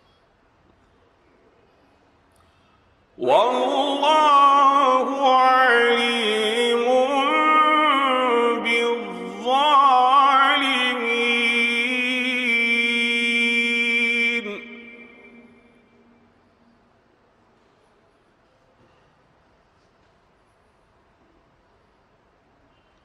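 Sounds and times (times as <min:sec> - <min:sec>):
man chanting melodically: 0:03.2 - 0:15.9.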